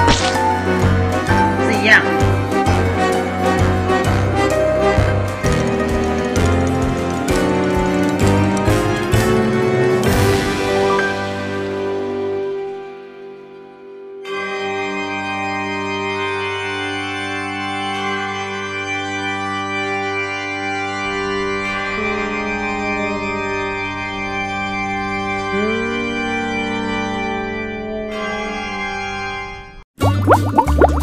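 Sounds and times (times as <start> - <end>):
slow organ-like keyboard chords: 14.0 - 29.6.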